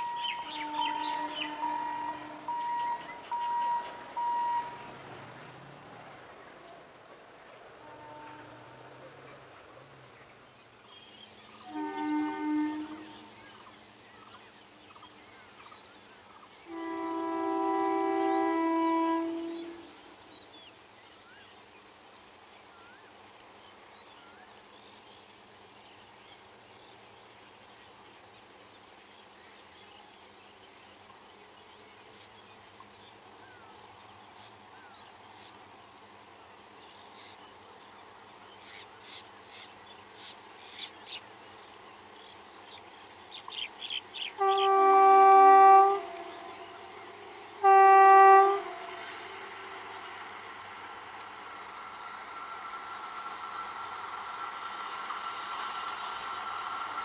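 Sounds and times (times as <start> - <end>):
locomotive horn: 0.0 - 5.0, 7.8 - 9.1, 11.6 - 13.6, 16.6 - 20.0, 44.3 - 54.5
insects humming: 0.0 - 57.0.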